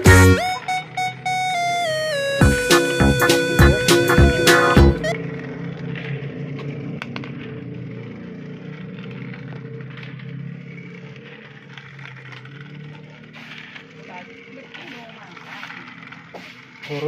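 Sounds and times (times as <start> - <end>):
plastic toys clicking and handled: 5.8 - 17.0.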